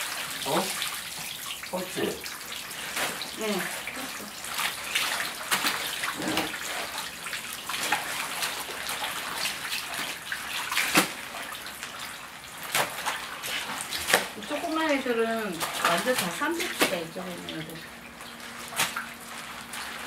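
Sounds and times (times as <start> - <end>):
water splashing and sloshing: 0.0 - 20.0.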